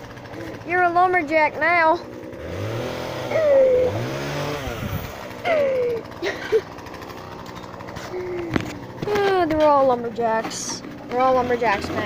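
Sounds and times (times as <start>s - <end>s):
engine revving: 0.0s - 12.0s
short falling cries: 3.2s - 4.2s.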